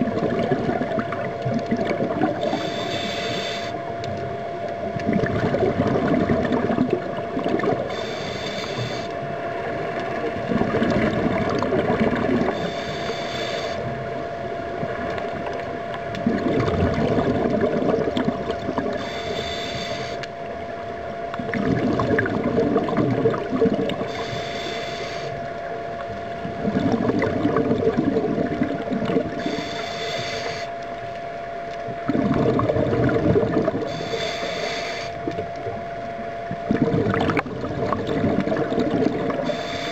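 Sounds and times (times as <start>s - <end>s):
steady hum: 0.0s - 39.9s
hissing regulator inhale: 2.2s - 3.9s, 7.8s - 9.2s, 12.4s - 14.0s, 18.9s - 20.3s, 23.9s - 25.6s, 29.3s - 30.9s, 33.7s - 35.3s, 39.3s - 39.9s
bubbling exhale: 16.2s - 20.2s, 21.5s - 25.4s, 26.6s - 30.8s, 32.0s - 35.5s, 36.6s - 39.9s.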